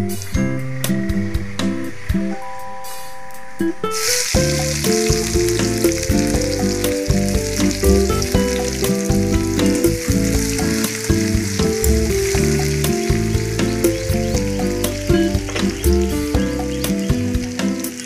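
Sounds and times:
background music: 0:00.0 - 0:18.0
onions sizzling in hot oil: 0:03.9 - 0:18.0.

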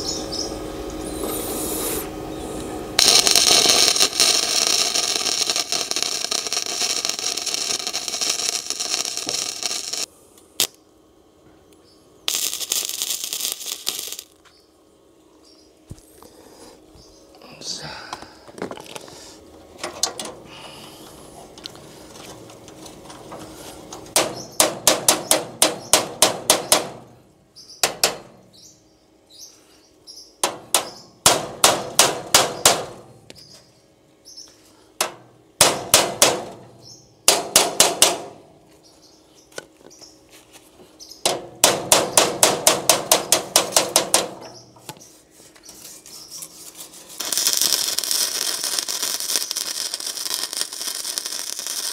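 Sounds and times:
hammer striking metal: 0:37.3 - 0:38.3.

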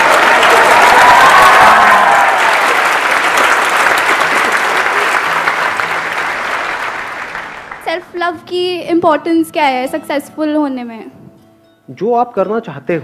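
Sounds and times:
audience clapping: 0:00.0 - 0:08.4.

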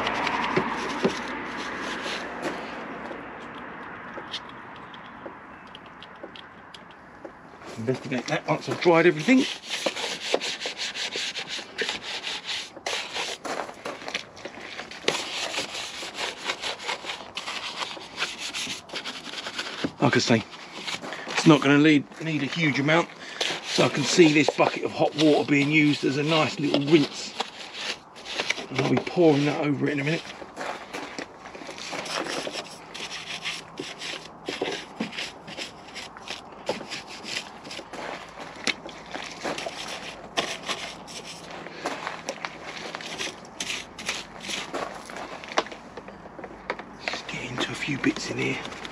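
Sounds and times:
stiff brush scrubbing wet surface: 0:00.0 - 0:03.0, 0:07.6 - 0:45.6, 0:47.0 - 0:48.9.

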